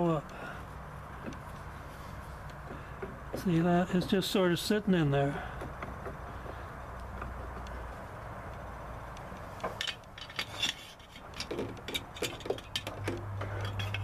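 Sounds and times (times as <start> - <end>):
loose gears clinking and knocking: 9.6 - 14.0.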